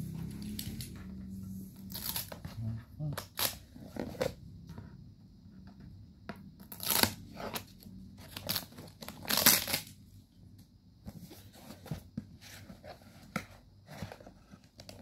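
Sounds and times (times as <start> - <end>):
cardboard ripping: 8.3 - 9.9.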